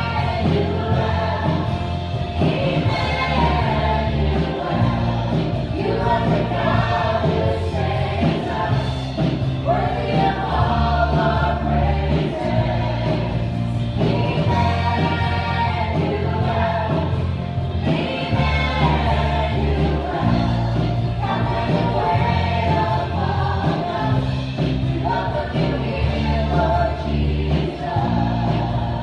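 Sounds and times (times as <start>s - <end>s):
bass line: 0.0s - 29.0s.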